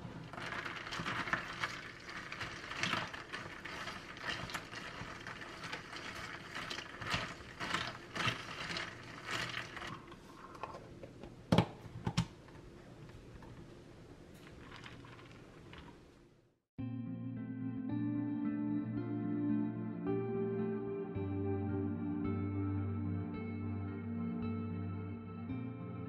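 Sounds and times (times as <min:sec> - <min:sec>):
ice cubes clinking in plastic cup: 0:00.2 - 0:10.0.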